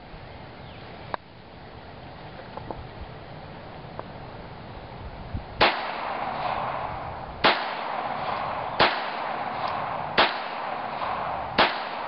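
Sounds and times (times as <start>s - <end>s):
pistol shots with echo: 5.6s - 12.0s.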